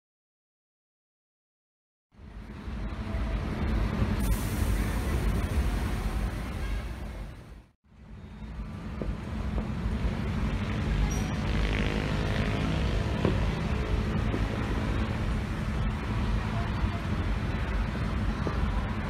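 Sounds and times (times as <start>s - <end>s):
traffic rumble: 2.1s - 19.0s.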